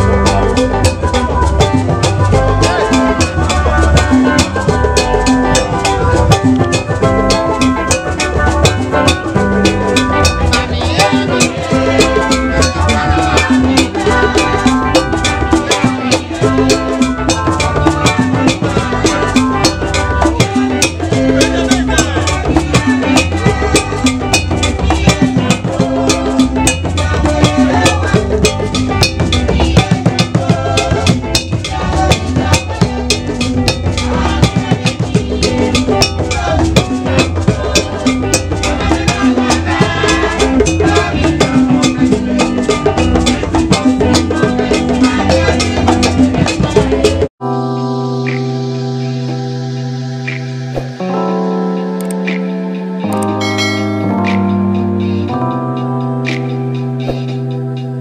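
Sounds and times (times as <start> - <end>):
music with drum beat: 0.0 - 47.3, 52.0 - 58.0
held chord ringing: 51.0 - 56.2.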